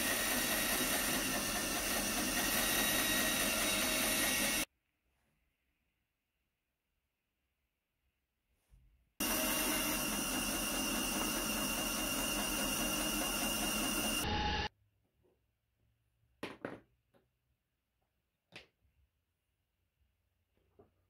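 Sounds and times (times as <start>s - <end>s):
bandsaw running: 0.0s - 4.7s, 9.2s - 14.7s.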